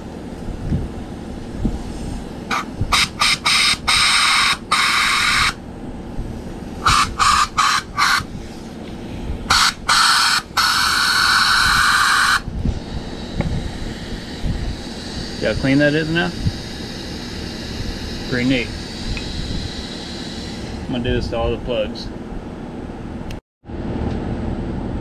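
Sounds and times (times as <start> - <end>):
sandblaster hissing bursts: 1.9 - 5.6, 6.8 - 8.8, 9.5 - 21.9.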